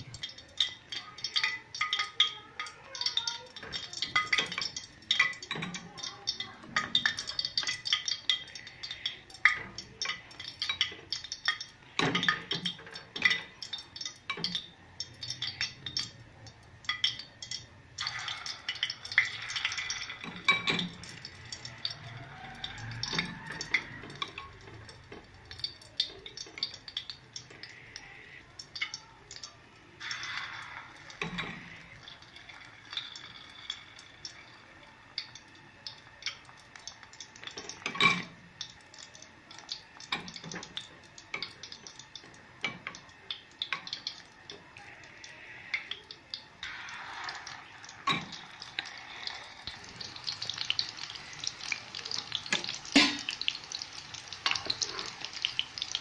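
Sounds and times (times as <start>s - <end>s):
metal utensils clinking on bowl: 37.5s - 38.4s.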